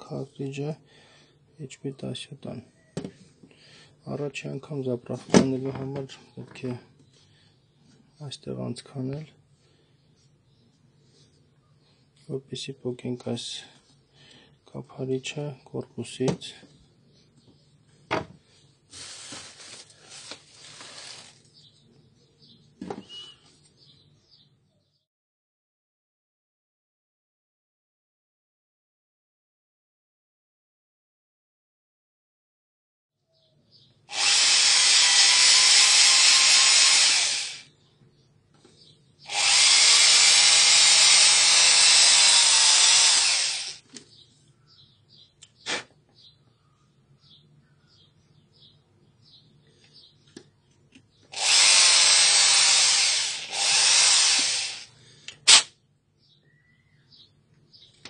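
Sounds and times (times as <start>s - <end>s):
hands rustling and rubbing: 18.9s - 21.6s
cordless drill boring into plastic: 34.1s - 37.7s, 39.3s - 43.8s, 51.3s - 55.7s.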